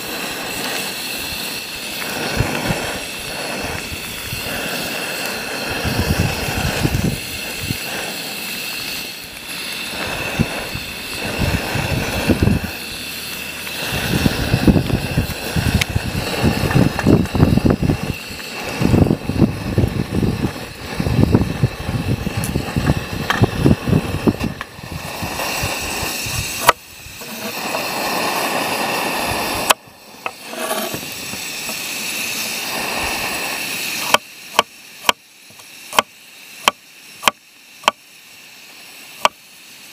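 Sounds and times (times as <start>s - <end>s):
gas stove hiss: 0.0s - 39.9s
potatoes bubbling in a pan: 0.0s - 39.9s
low irregular rumble: 9.3s - 31.6s
spatula stirring: 30.3s - 31.1s.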